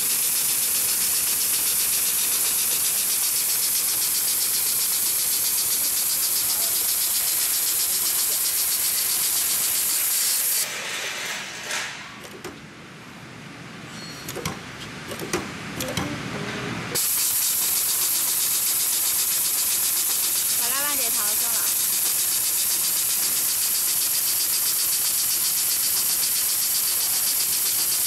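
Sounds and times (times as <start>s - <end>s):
sewing machine clatter: 17.0s - 28.0s.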